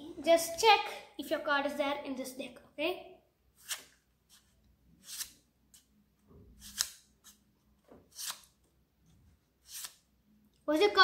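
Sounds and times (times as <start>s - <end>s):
playing cards swishing: 3.6s - 5.4s, 8.1s - 8.5s, 9.7s - 10.0s.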